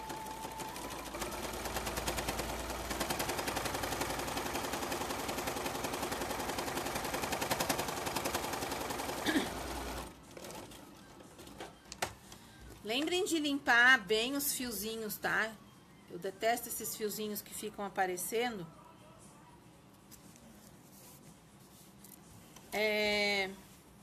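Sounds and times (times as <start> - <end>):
electric sewing machine stitching: 0.0 - 10.1.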